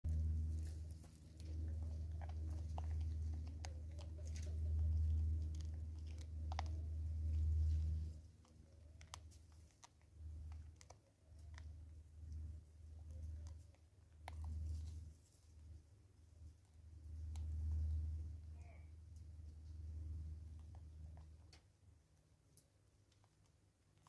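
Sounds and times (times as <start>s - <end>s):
low rumble: 0.1s - 8.9s
monkey chewing seed: 0.1s - 15.6s.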